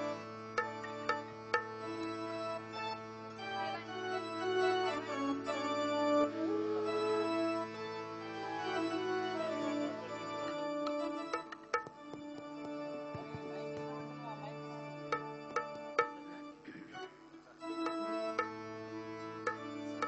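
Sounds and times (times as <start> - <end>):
keyboard melody over drone: 0.0 - 20.0
tabla strokes: 0.6 - 1.8, 11.3 - 13.5, 15.1 - 16.9, 17.8 - 18.6, 19.5 - 19.7.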